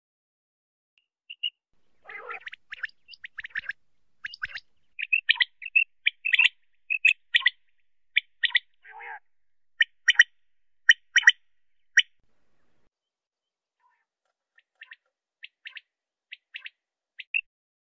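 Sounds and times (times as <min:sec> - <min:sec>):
rough low bird call: 0:01.4 - 0:10.3
quail calling high notes: 0:02.0 - 0:09.2, 0:10.9 - 0:11.4.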